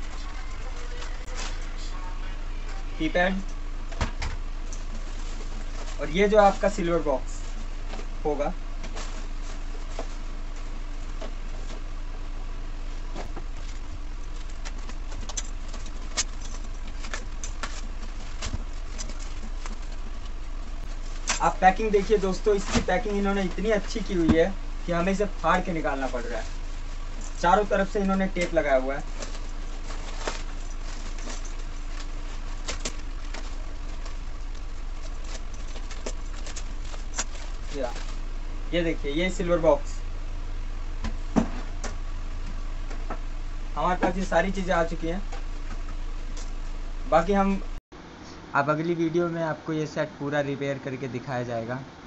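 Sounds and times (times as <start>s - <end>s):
low hum: 0.0s - 47.8s
paper and tape crinkling and tearing: 13.2s - 39.8s.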